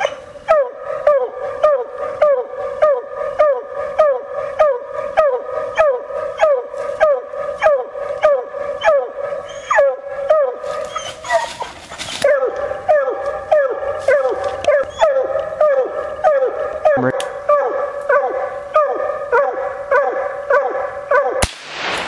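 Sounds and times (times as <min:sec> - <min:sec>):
hound barking: 0:00.0 - 0:21.4
rustling noise: 0:10.6 - 0:12.4, 0:13.9 - 0:14.8.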